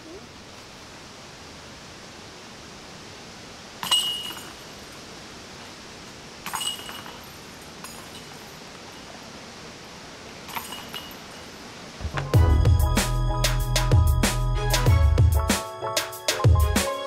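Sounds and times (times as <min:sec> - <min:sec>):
steady hiss: 0:00.0 - 0:17.0
faint clink: 0:03.8 - 0:04.9, 0:06.4 - 0:09.2, 0:10.4 - 0:11.5
basket chains jingling: 0:03.8 - 0:05.0, 0:06.4 - 0:09.1, 0:10.4 - 0:11.6.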